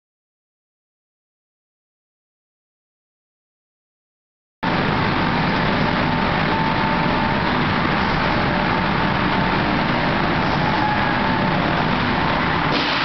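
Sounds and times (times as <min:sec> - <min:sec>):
industrial machine hiss and hum: 0:04.7 - 0:13.0.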